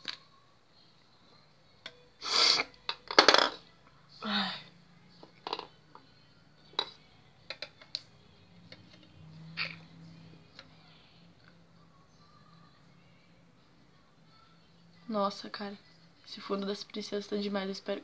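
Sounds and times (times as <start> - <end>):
plastic tubes and caps clicking: 5.2 - 6.0, 6.8 - 8.1.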